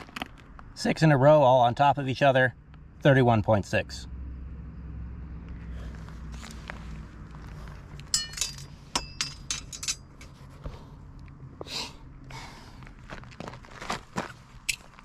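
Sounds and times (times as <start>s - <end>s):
metal tools clicking: 8.0s - 10.3s
steel straightedge clinking: 8.1s - 10.3s.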